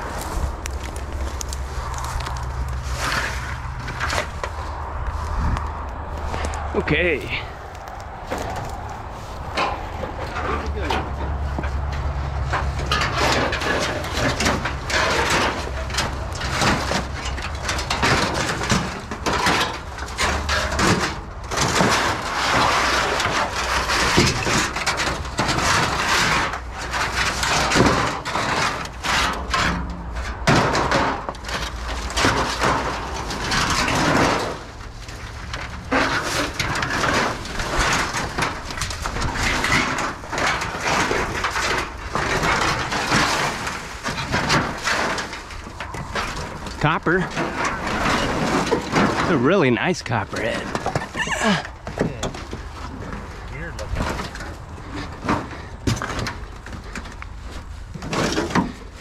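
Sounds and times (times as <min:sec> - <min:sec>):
dry brush rustling and snapping: 0:00.0 - 0:29.7.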